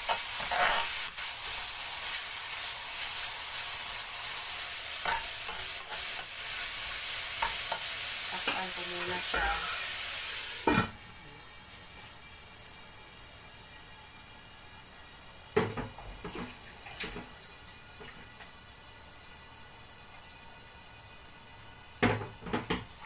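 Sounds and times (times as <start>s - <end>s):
metal ladle scraping a wok: 0.0s - 1.2s
pork sizzling in a wok: 0.0s - 23.0s.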